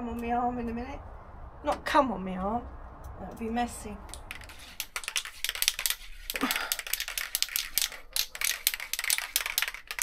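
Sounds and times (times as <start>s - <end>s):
spray can ball rattling: 4.1s - 10.0s.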